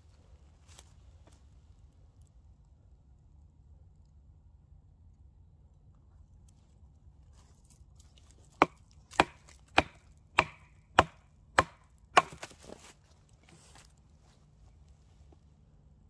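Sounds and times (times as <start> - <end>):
wood crackling as it splits: 7.5 - 14.1
knife knocking into log: 8.6 - 12.9.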